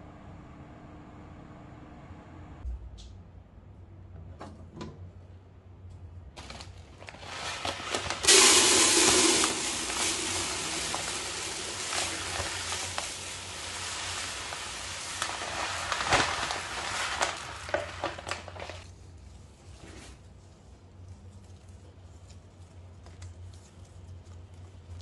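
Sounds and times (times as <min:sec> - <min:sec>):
rice pouring into plastic bin: 0:07.0 - 0:18.9.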